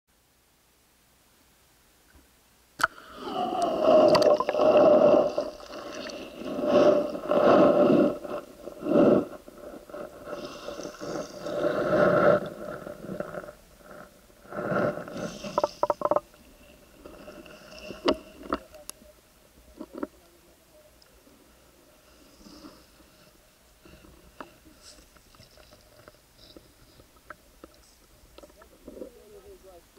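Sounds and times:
muffled underwater sloshing: 0:02.9 - 0:20.5.

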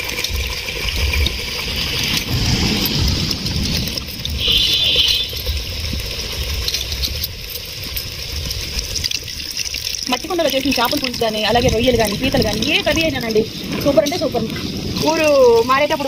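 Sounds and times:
water sloshing in bowl: 0:08.5 - 0:15.3.

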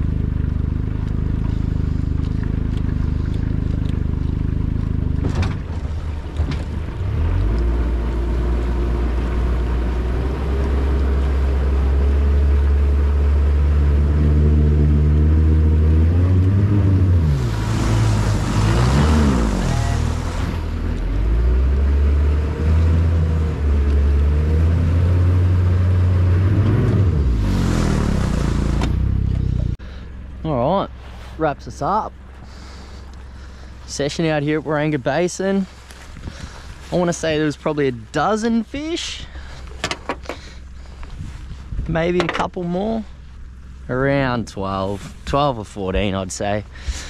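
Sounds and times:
outboard motor running: 0:00.0 - 0:47.0
rushing noise: 0:17.1 - 0:20.9.

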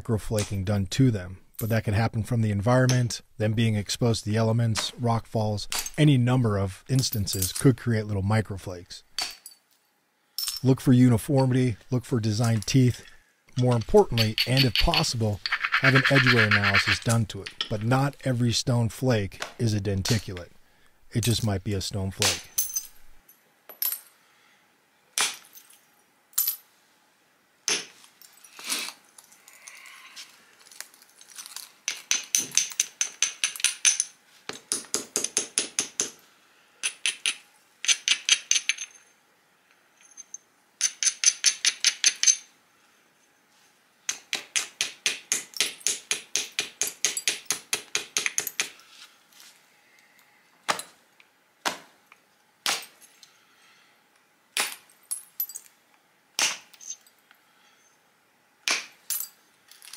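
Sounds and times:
hammerstone scraping stone edge: 0:13.8 - 0:17.8.

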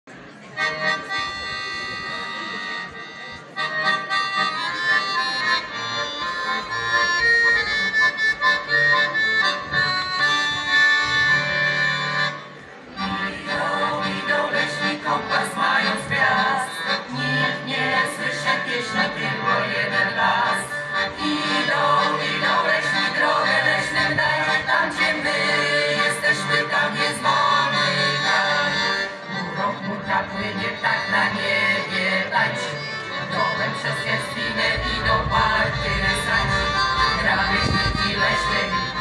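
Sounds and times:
accordion playing folk music: 0:00.1 - 0:39.0.

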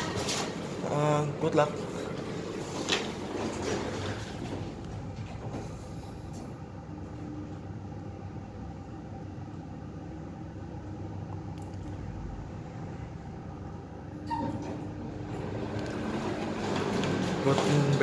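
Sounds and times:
lift sliding doors closing: 0:00.0 - 0:07.2, 0:14.0 - 0:18.0
low mechanical hum: 0:00.0 - 0:18.0.

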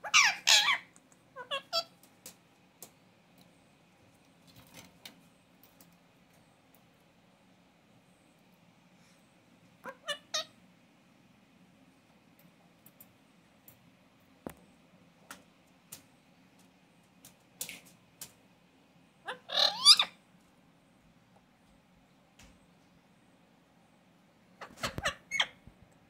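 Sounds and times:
parakeet calling: 0:00.0 - 0:01.9, 0:09.8 - 0:10.5, 0:19.2 - 0:20.2, 0:24.6 - 0:25.6.

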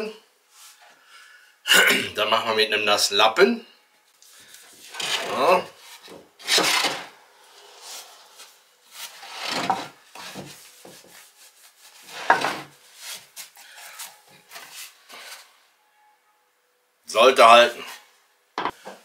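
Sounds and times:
wet rag rubbing on wood: 0:10.2 - 0:15.4.

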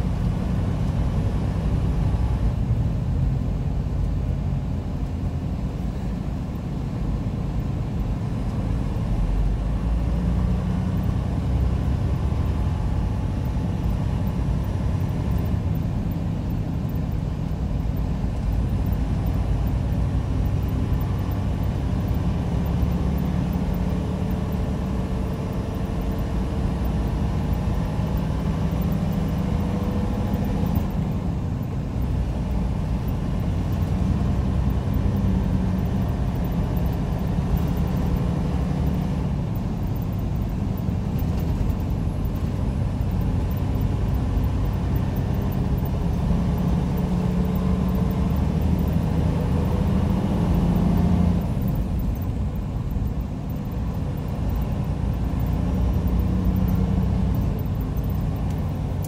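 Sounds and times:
diesel engine drone: 0:00.0 - 0:59.0
road and tyre noise: 0:00.0 - 0:59.0.

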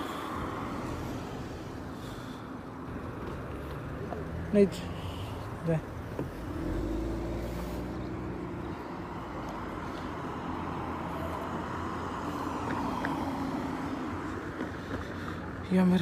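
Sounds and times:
car driving on road: 0:00.0 - 0:16.0.

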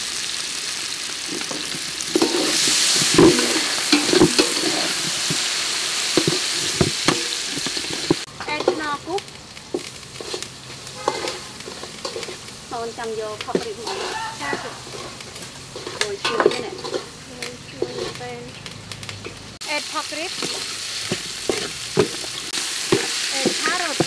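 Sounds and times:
aromatics sizzling in hot oil: 0:00.0 - 0:24.0
metal spatula scraping a pot: 0:01.3 - 0:05.4, 0:06.0 - 0:09.0, 0:09.7 - 0:12.6, 0:13.3 - 0:18.5, 0:20.3 - 0:24.0.

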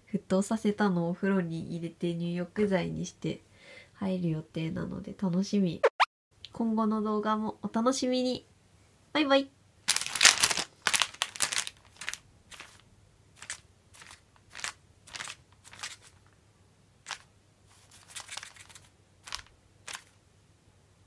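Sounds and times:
plastic wrapping crinkling: 0:09.8 - 0:16.4, 0:17.0 - 0:20.2.

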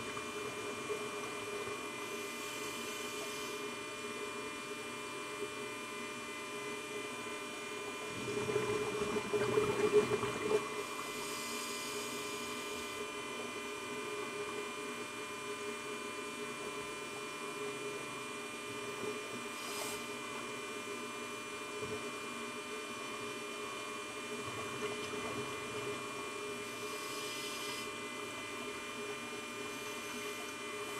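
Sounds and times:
camera electrical hum: 0:00.0 - 0:30.9
scuba regulator bubbles: 0:08.0 - 0:11.3, 0:24.2 - 0:27.8.

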